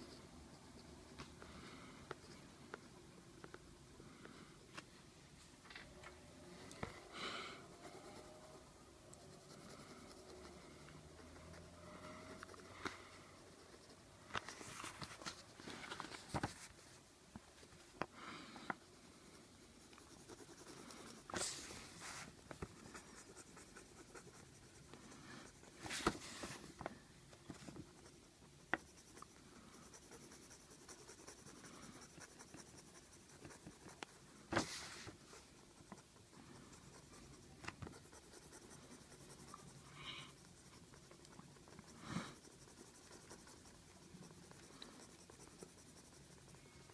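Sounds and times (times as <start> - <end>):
pencil scratching on paper: 7.7 - 15.6, 18.8 - 26.7, 27.5 - 46.9.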